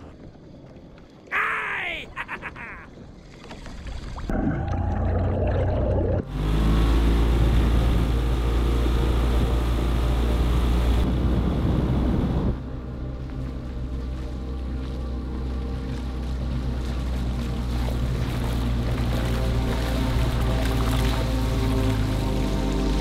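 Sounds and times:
outboard motor drone: 3.0 - 23.0
softer engine sound: 5.7 - 23.0
wake and wind rushing: 5.8 - 23.0.

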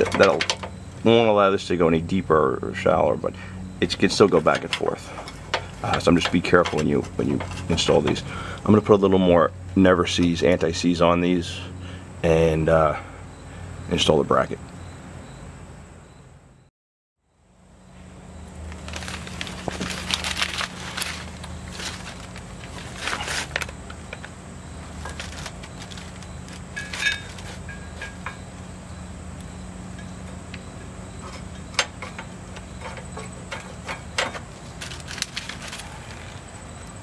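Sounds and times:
metal bracket clinking and scraping: 0.0 - 0.8, 3.8 - 8.3, 19.8 - 28.6, 29.9 - 36.2
steady low hum: 0.0 - 16.7, 17.3 - 37.0
metallic ting: 26.8 - 28.5.

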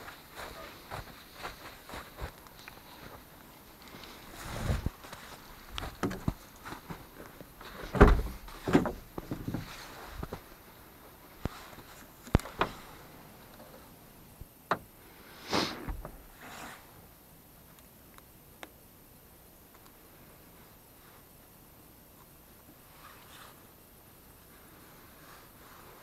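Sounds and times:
knocks and scrapes on metal and plastic: 6.0 - 6.4, 7.7 - 9.8
heavy thump: 7.9 - 9.7, 15.9 - 16.3.

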